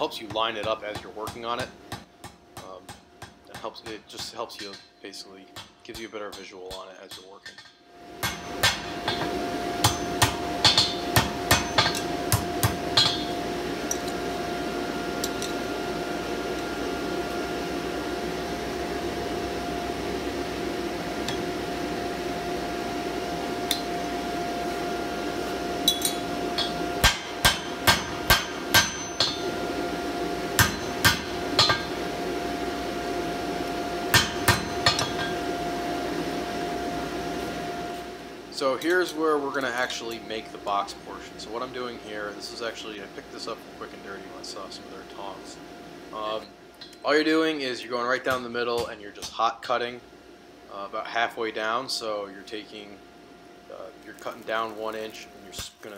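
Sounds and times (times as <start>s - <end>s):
hammer striking hot steel on anvil: 0.0s - 14.3s, 15.2s - 15.7s, 21.2s - 21.6s, 23.6s - 24.1s, 25.8s - 29.7s, 30.6s - 32.1s, 34.1s - 35.5s, 48.3s - 49.4s, 55.5s - 55.9s
steady hum: 0.0s - 55.9s.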